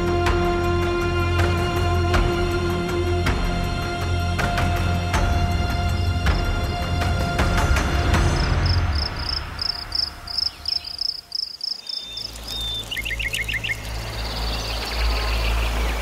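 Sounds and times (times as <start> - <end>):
rhythmic high chirping call: 8.4 - 15.5.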